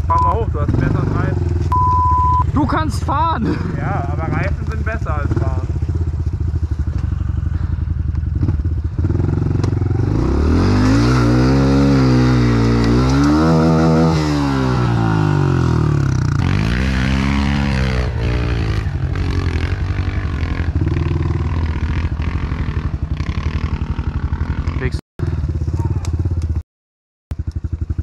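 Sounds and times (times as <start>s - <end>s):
small motorcycle engine revving: 7.0s - 26.5s.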